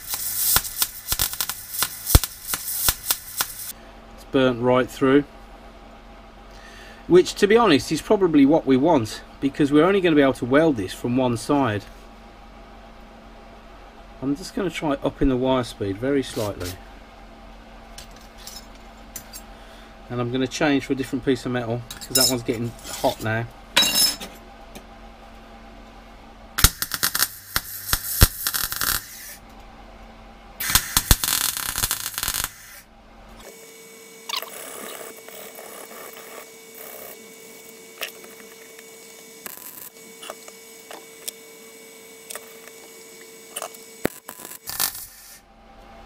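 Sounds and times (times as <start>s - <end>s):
welding crackle: 0.0s - 3.7s, 26.6s - 29.4s, 30.6s - 32.8s, 34.3s - 41.4s, 42.3s - 45.4s
steady hum: 0.0s - 46.0s.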